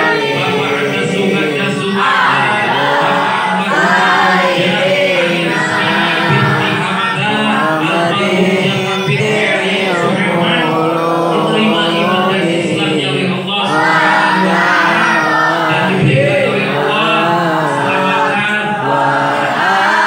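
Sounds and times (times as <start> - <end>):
group chanting prayers: 0.0 - 20.0
man leading on microphone: 0.0 - 20.0.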